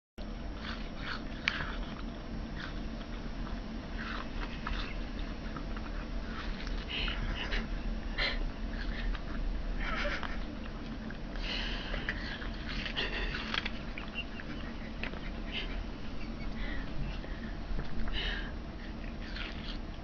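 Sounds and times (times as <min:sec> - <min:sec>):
cat chewing: 0:00.2 - 0:20.0
steady low hum: 0:00.2 - 0:20.0.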